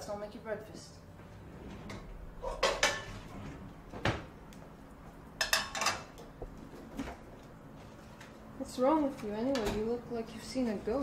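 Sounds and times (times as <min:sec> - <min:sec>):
dishes clattering: 0:02.4 - 0:03.3, 0:05.4 - 0:06.2
kitchenware clinking: 0:02.4 - 0:03.3, 0:05.4 - 0:06.2.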